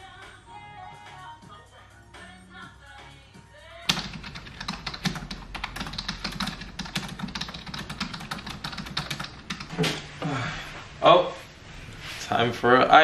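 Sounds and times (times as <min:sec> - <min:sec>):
tv programme music: 0:00.0 - 0:09.5
fast keyboard typing: 0:03.9 - 0:09.8.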